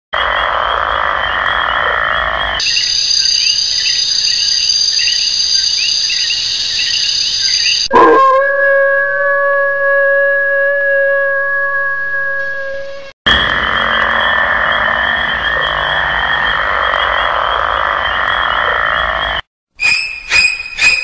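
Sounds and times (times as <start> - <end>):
frogs croaking: 0.2 - 7.9, 13.3 - 19.4
high-pitched insect drone: 2.6 - 7.9.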